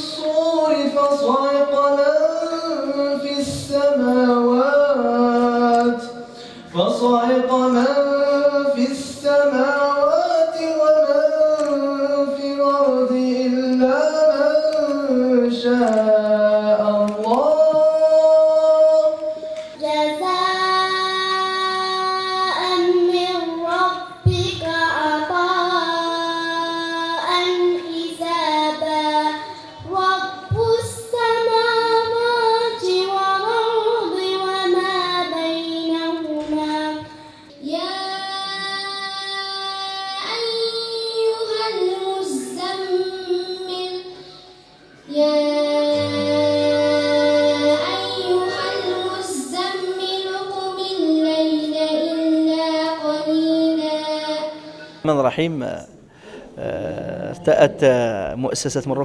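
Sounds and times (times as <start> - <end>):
child reciting melodically: 8.0 - 55.1
child breathing: 56.1 - 56.6.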